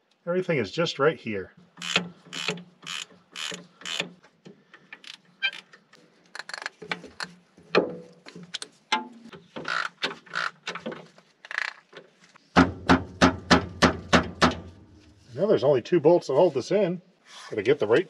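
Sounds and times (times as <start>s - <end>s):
ratchet wrench clicking: 1.8s - 4.1s
loud knock: 12.6s - 14.7s.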